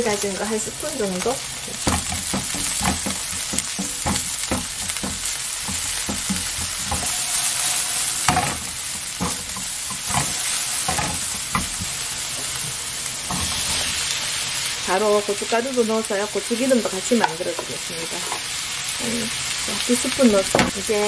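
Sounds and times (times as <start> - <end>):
onion and garlic sizzling in oil: 0.0 - 21.0
spatula scraping a pan: 1.4 - 14.6.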